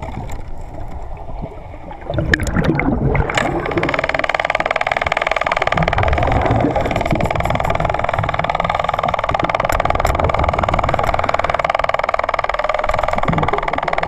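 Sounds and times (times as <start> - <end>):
underwater boat engine drone: 0.0 - 14.0
faint clicks: 3.3 - 14.0.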